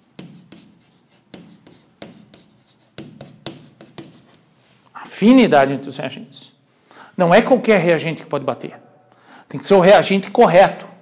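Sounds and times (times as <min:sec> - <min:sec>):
chalk scratching on chalkboard: 0:00.0 - 0:04.4.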